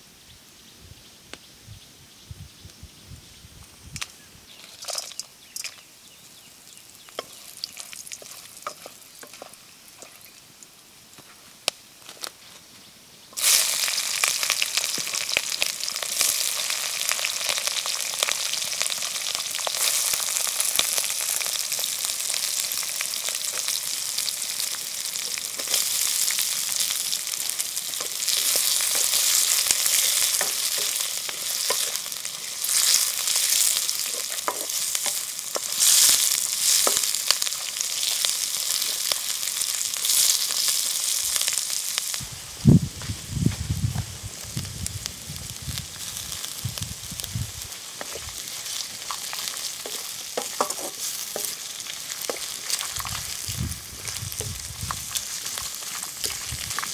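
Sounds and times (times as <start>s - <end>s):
vegetables sizzling in hot oil: 3.8s - 12.3s, 13.2s - 56.9s
wooden spatula scraping and stirring: 7.2s - 10.3s, 27.4s - 37.2s, 48.0s - 53.4s.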